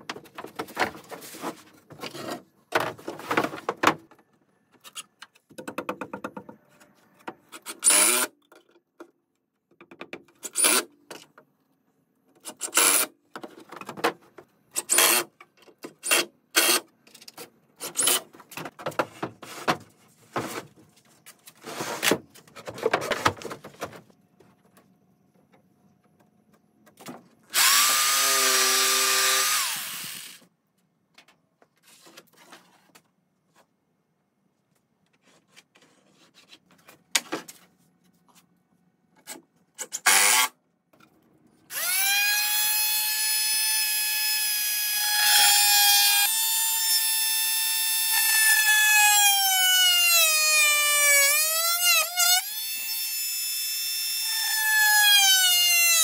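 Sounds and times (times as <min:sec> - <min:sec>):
power drill driving screws: 0:07.8 - 0:08.3, 0:12.6 - 0:13.1, 0:14.8 - 0:15.3, 0:27.5 - 0:30.4, 0:40.0 - 0:40.5, 0:41.7 - 0:56.0
jigsaw cutting plywood: 0:27.5 - 0:30.4, 0:41.7 - 0:56.0.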